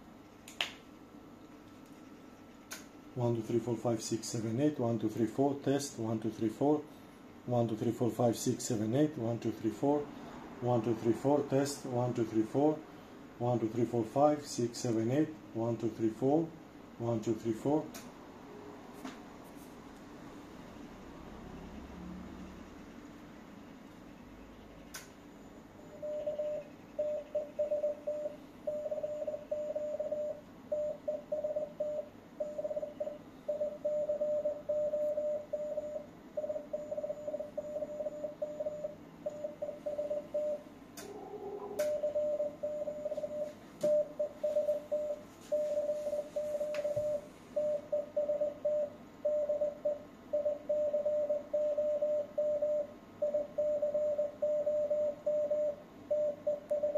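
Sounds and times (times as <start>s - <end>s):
brief tones: 25.9s - 40.6s
morse code tone: 25.9s - 40.6s, 41.8s - 56.9s.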